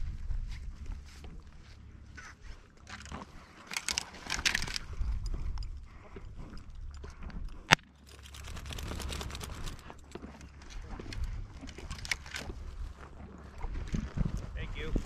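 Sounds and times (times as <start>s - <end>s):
wind rumbling on microphone: 0.0s - 2.7s, 4.4s - 15.0s
dry brush rustling and crackling: 8.0s - 15.0s.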